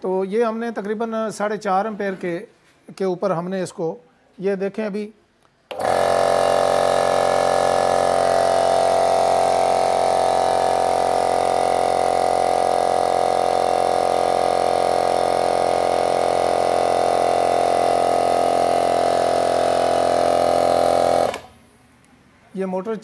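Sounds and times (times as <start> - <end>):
air compressor running: 5.7 - 21.8.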